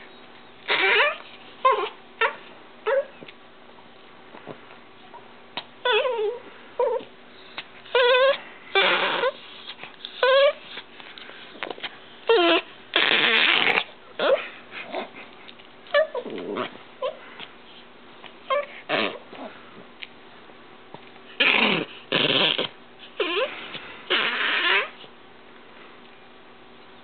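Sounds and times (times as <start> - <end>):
small dog play-growling and whining: 0.6 - 3.3, 5.1 - 10.9, 11.5 - 15.2, 15.8 - 17.3, 18.4 - 19.6, 21.3 - 25.1.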